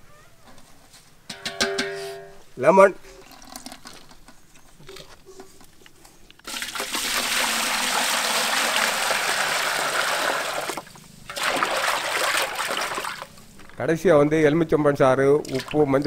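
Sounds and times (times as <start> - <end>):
water pouring into steel bowl: 6.5 - 13.4, 15.4 - 16.0.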